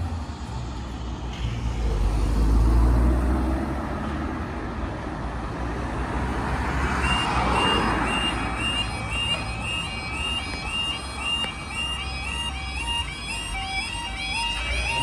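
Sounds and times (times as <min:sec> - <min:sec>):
heavy vehicle low rumble: 0:00.0 - 0:05.9
road traffic passing: 0:00.0 - 0:15.0
level crossing warning alarm: 0:06.8 - 0:15.0.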